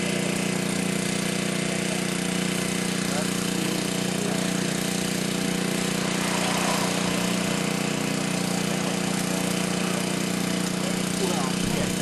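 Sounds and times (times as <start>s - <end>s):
motor droning: 0.0s - 12.0s.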